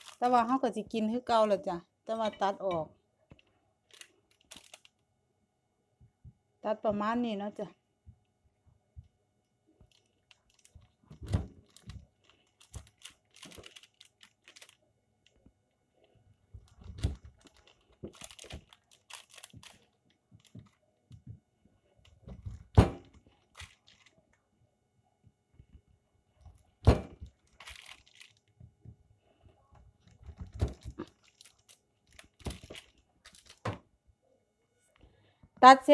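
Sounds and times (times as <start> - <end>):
parchment paper rustling: 0.0 - 0.7, 3.9 - 5.0, 9.8 - 14.8, 16.6 - 20.8, 21.9 - 24.3, 26.5 - 28.6, 29.3 - 33.7.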